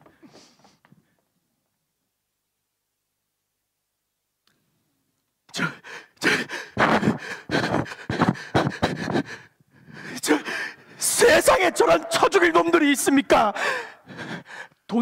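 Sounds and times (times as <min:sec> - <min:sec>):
person sighing and gasping: 0:05.5 - 0:11.0, 0:13.5 - 0:14.8.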